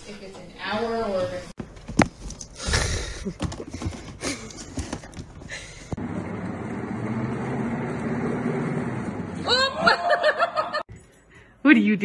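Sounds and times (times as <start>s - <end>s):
knocks and scuffling: 1.6s - 6.0s.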